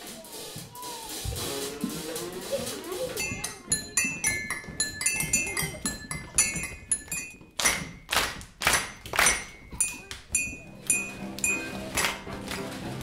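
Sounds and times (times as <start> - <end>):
mugs and cups clinking: 3.2 - 12.8.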